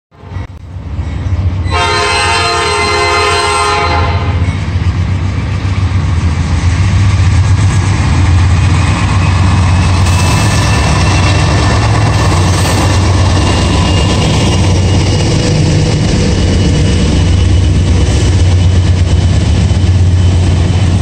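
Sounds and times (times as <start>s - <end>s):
diesel locomotives rumbling: 0.2s - 21.0s
locomotive air horn: 1.7s - 4.4s.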